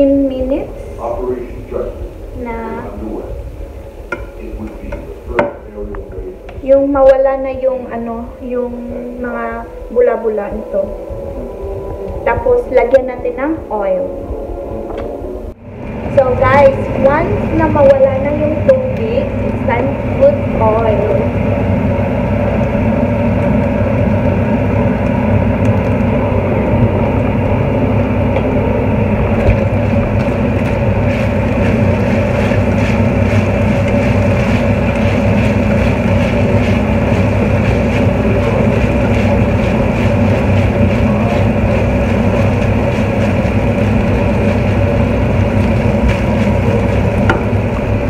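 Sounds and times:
meat frying in oil: 15.7s - 28.1s, 28.9s - 48.0s
crackles: 29.2s - 48.0s.

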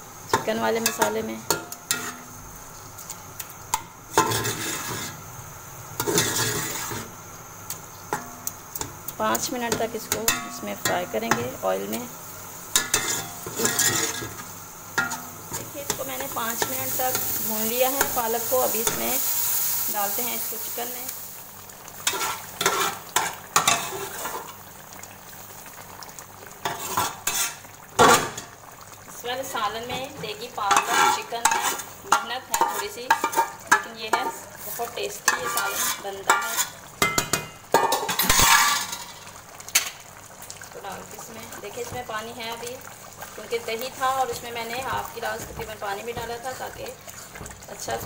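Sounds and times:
gravy bubbling and sizzling: 0.0s - 48.0s
spoon scraping metal pot: 12.8s - 14.4s, 22.0s - 24.4s, 26.7s - 27.6s, 30.7s - 31.9s, 35.3s - 36.8s
spoon scraping pot bottom: 35.3s - 36.8s.

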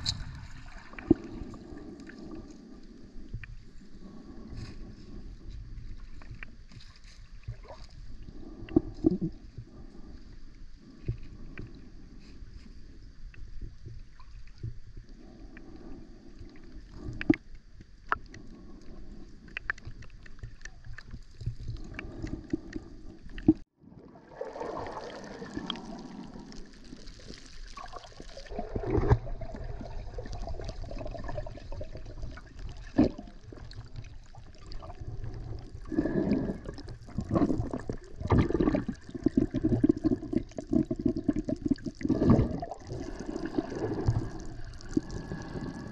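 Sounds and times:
gurgling bubbles: 0.0s - 2.8s, 19.7s - 45.9s
low underwater rumble: 0.0s - 45.9s
underwater clicks and knocks: 17.1s - 18.4s.

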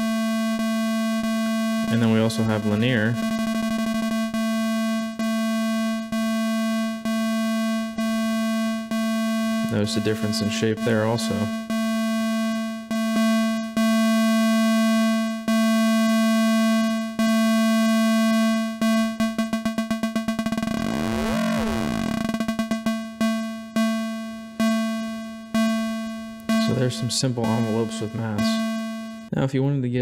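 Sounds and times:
pulsing low synth tone: 2.4s - 4.4s, 18.8s - 26.6s.

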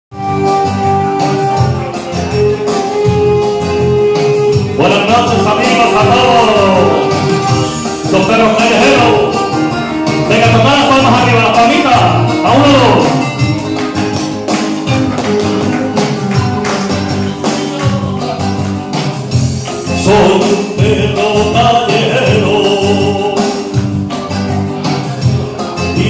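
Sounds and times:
rumba music over loudspeakers: 0.1s - 26.0s.

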